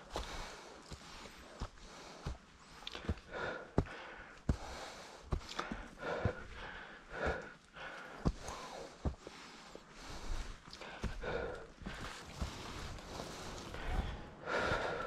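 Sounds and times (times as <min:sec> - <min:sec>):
person breathing hard: 0:00.0 - 0:15.0
footsteps on dry leaf litter: 0:11.8 - 0:14.3.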